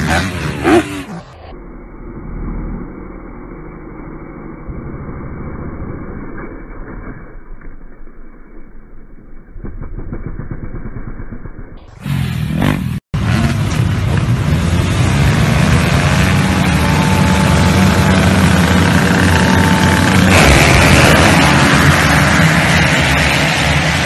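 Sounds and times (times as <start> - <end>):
motorcycles revving together: 0.0 - 1.2, 12.0 - 24.0
dirt bike engine running: 8.8 - 24.0.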